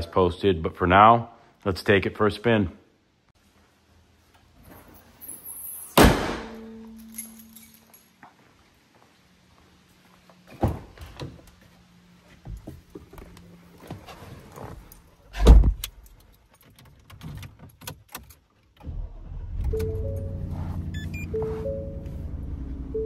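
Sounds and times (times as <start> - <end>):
knocks and shuffling: 3.4 - 6.0, 6.7 - 18.8, 19.8 - 22.8
truck engine starting and idling: 18.8 - 23.0
two-note dashboard chime: 19.7 - 23.0.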